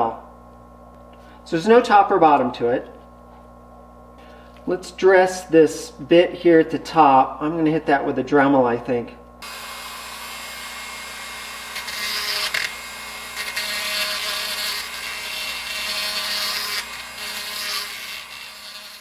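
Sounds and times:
rotary tool grinding metal: 0:09.4 - 0:19.0.

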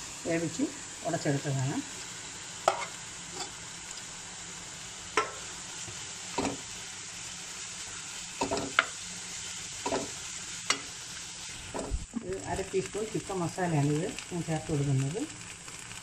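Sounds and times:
food sizzling in a frying pan: 0:00.0 - 0:16.0
spoon scraping a pan: 0:02.7 - 0:03.6, 0:05.2 - 0:05.5, 0:06.3 - 0:06.7, 0:08.4 - 0:09.0, 0:09.8 - 0:11.0.

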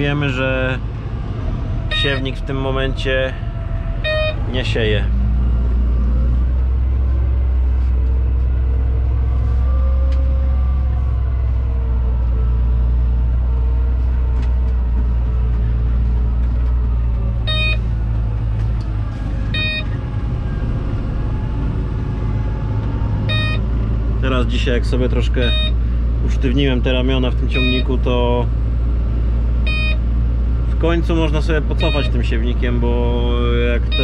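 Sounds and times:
tractor diesel engine running: 0:00.0 - 0:34.0
short electronic beeps: 0:01.9 - 0:02.3, 0:04.0 - 0:04.5, 0:17.5 - 0:17.9, 0:19.6 - 0:20.0, 0:23.3 - 0:23.6, 0:25.5 - 0:25.8, 0:27.5 - 0:28.0, 0:29.7 - 0:30.0, 0:31.8 - 0:32.2.

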